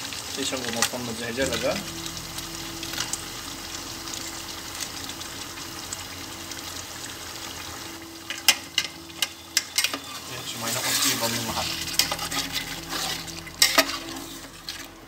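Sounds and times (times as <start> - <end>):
pot cooking hiss and hum: 0.0 - 15.0
metal tongs clicking on pot: 8.3 - 10.1.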